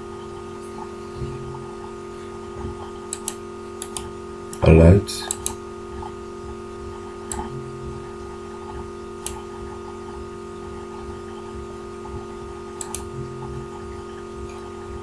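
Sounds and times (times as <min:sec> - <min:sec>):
steady electrical hum: 0:00.0 - 0:15.0
computer mouse clicking: 0:02.6 - 0:04.6, 0:05.3 - 0:06.2, 0:07.2 - 0:07.5, 0:08.6 - 0:10.2, 0:12.8 - 0:13.1.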